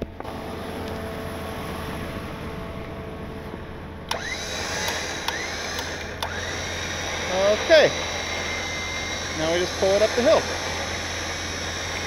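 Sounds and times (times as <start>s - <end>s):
electric winch motor hum: 0.0s - 12.0s
sharp clicks: 4.1s - 6.6s.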